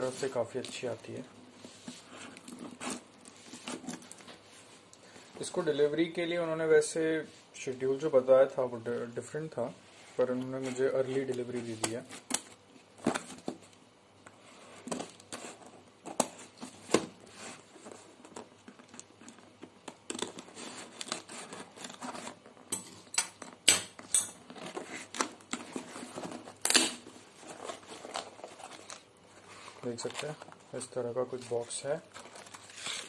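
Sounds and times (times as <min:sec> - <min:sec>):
tape tearing: 0:18.3 - 0:22.4, 0:24.5 - 0:29.1, 0:32.1 - 0:33.0
scissors snipping tape and cardboard: 0:26.6 - 0:27.0.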